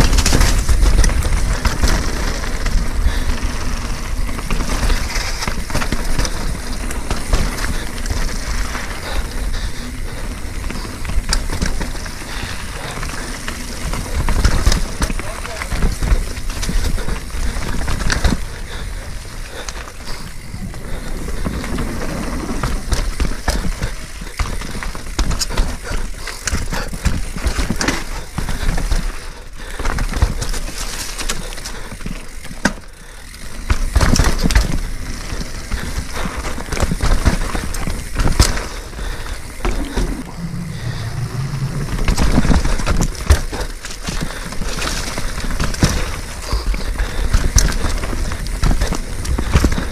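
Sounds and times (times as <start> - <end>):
bike clattering and rattling: 0.0 - 49.9
bike tyres rolling over dirt: 0.0 - 49.9.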